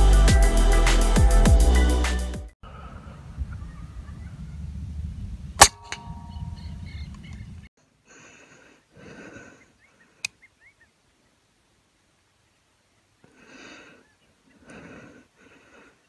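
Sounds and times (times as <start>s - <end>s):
soft breathing: 7.8s - 10.5s, 13.2s - 16.0s.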